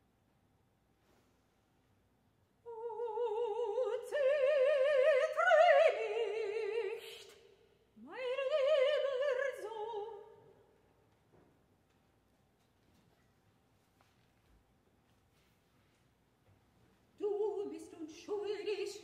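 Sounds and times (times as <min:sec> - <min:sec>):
woman singing operatic: 0:02.7 - 0:10.5, 0:17.2 - 0:19.0.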